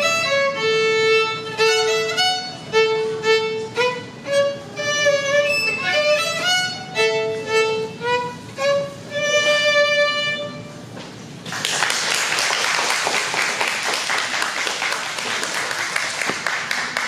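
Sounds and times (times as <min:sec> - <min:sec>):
solo violin playing: 0:00.0 - 0:11.0
audience applause: 0:11.5 - 0:17.0.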